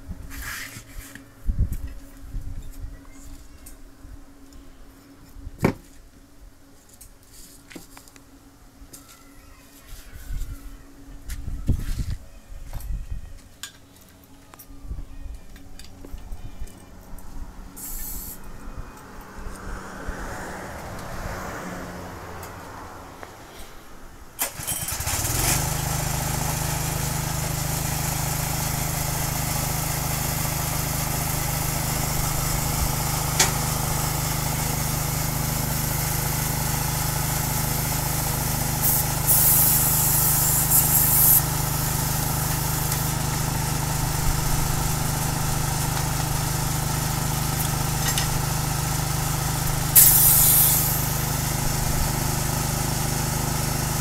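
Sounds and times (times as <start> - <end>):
air hissing from inflator hose: 17.8 - 18.4, 38.8 - 43.5, 49.6 - 51.6
air compressor engine running: 24.4 - 54.0.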